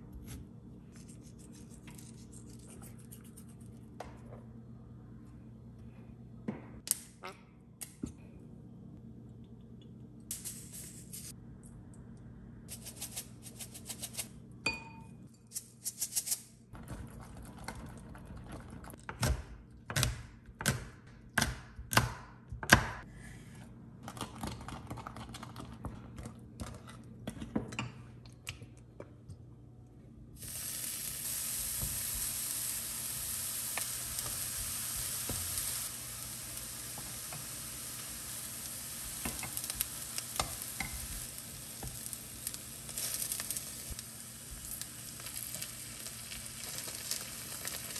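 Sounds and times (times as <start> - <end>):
eggplant sizzling in frying pan: 30.4 - 47.9.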